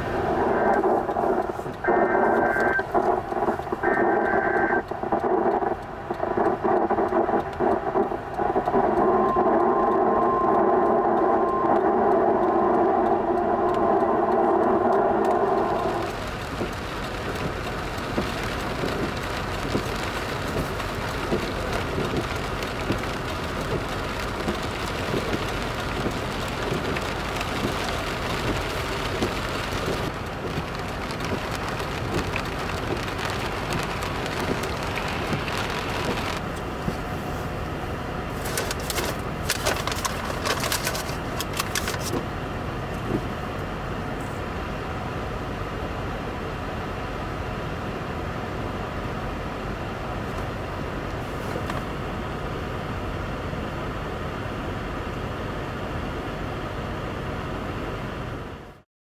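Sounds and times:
heavy rain: 0.0s - 54.3s
wind: 0.0s - 58.8s
sharp crackles: 0.1s - 37.6s, 38.3s - 42.3s.

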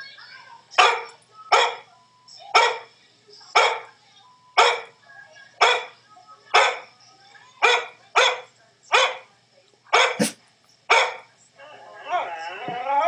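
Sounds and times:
dog barking from computer: 0.8s - 1.9s, 2.5s - 2.9s, 3.5s - 3.9s, 4.6s - 5.0s, 5.6s - 6.9s, 7.6s - 9.3s, 9.9s - 11.3s.

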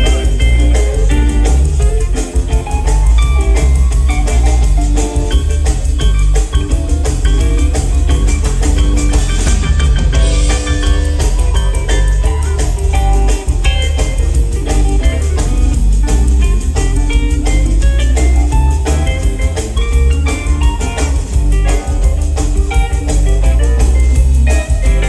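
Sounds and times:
live rock band playing: 0.0s - 25.0s.

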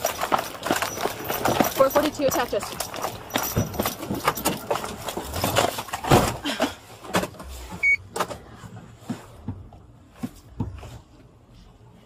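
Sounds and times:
clothing and gear rustling: 0.0s - 6.0s.

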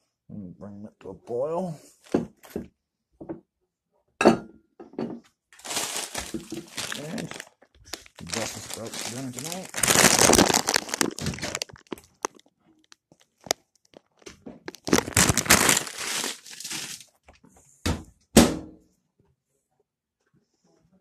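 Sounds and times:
plastic bag crinkling: 5.6s - 17.2s.

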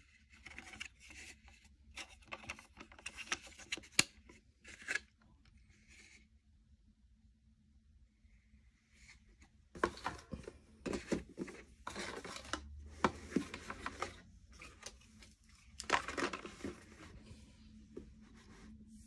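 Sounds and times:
packaging rustles and scrapes: 9.8s - 17.4s.

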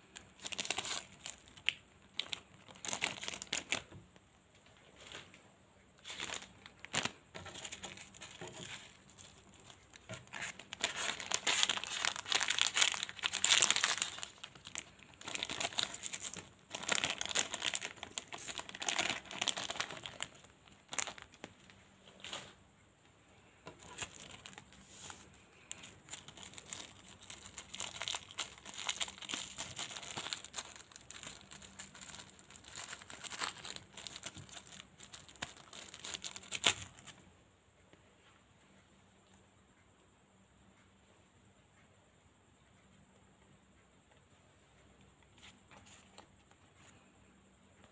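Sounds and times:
packets crinkling and tearing: 0.0s - 4.0s, 6.0s - 21.5s, 23.8s - 24.8s, 25.7s - 37.1s.

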